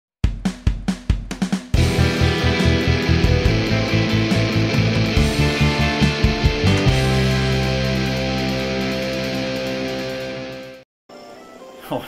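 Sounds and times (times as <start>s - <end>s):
drum kit playing: 0.2s - 10.8s
rock music: 1.7s - 10.8s.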